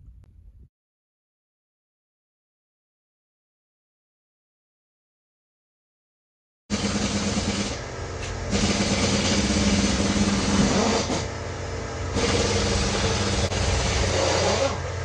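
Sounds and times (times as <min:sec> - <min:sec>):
mechanical running noise with hum: 0:06.7 - 0:15.0.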